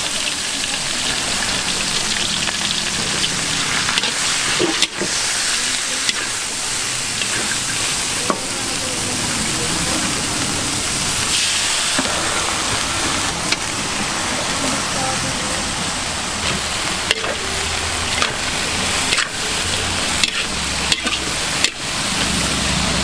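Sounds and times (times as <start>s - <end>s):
vegetables sizzling in a wok: 0.0s - 23.0s.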